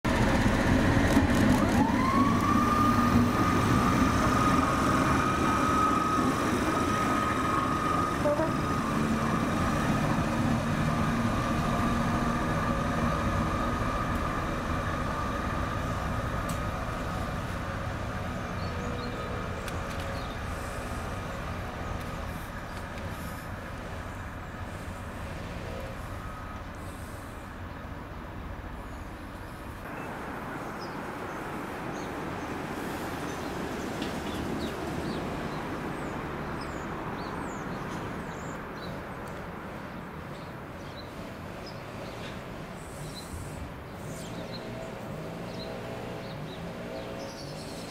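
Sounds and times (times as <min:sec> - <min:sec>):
locomotive whine: 0:00.1 - 0:32.1
locomotive running rumble: 0:00.1 - 0:45.2.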